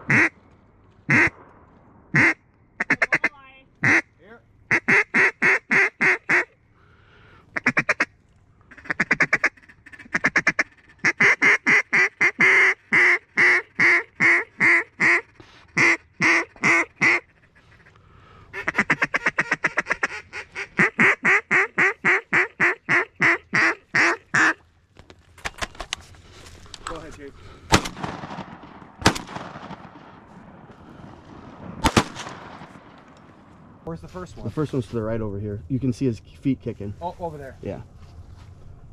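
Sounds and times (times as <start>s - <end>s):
duck call quacks: 0.1s - 0.4s, 1.1s - 1.3s, 2.1s - 4.1s, 4.7s - 6.6s, 7.5s - 8.1s, 8.7s - 24.6s.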